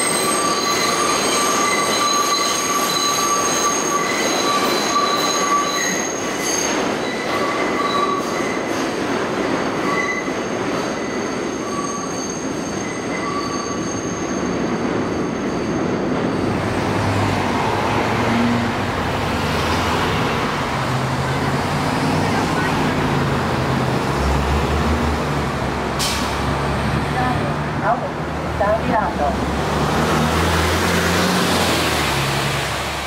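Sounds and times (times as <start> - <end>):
train wheels squealing: 0.0 - 16.7
street traffic: 0.0 - 33.0.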